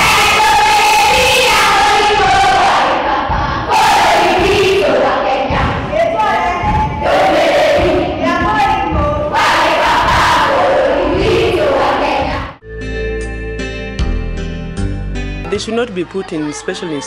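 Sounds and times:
children singing together: 0.0 - 12.6.

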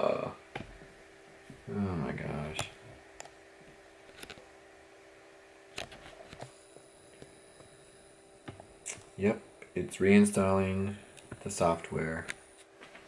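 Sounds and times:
faint high whine: 0.0 - 13.0
steady low hum: 0.0 - 13.0.

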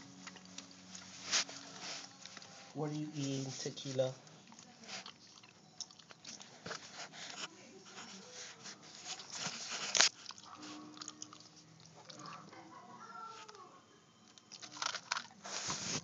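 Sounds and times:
dog crunching food: 3.5 - 6.9, 9.0 - 12.7, 14.4 - 16.0.

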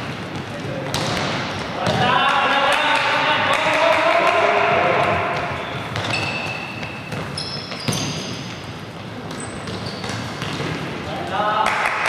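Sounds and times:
ball thudding on feet and floor: 0.2 - 2.0, 9.2 - 10.9
shoes squeaking on floor: 5.3 - 11.1.

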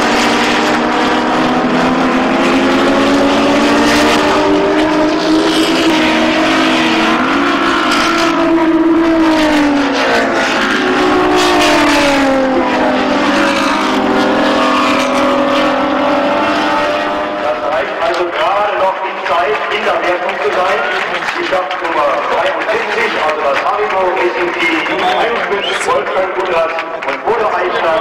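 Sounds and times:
racing cars passing at high revs: 0.0 - 28.0.

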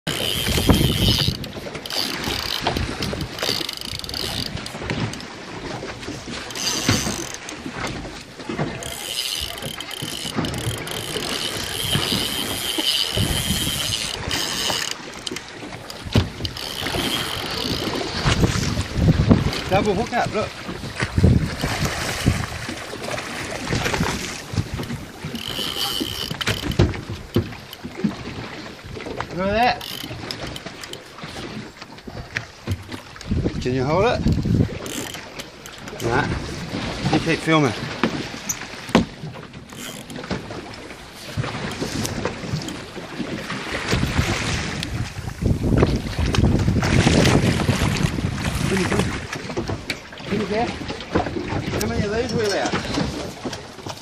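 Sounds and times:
water noise: 0.0 - 54.0
fishing reel drag whining: 0.1 - 5.3, 6.3 - 18.8, 19.4 - 20.1, 21.4 - 28.3, 29.0 - 32.9, 33.9 - 36.4, 39.6 - 43.0
low wind rumble: 9.6 - 27.5, 43.8 - 49.3.

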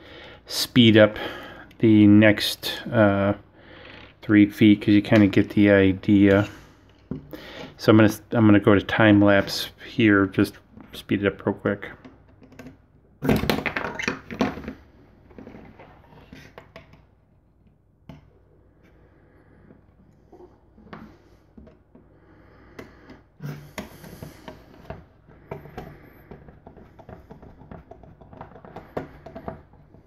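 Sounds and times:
plastic parts clicking and knocking: 11.9 - 18.3, 20.8 - 22.1, 22.8 - 30.0.

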